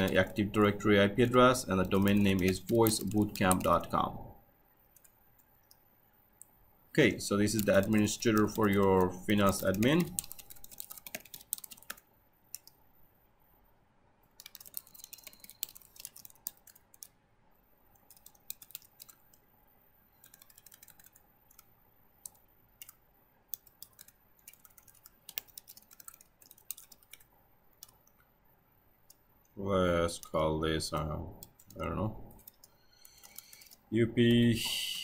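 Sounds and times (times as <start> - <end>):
keyboard typing: 0.0 - 4.2, 4.9 - 5.8, 7.4 - 12.8, 14.3 - 17.2, 17.9 - 19.4, 20.1 - 28.3, 30.0 - 33.9.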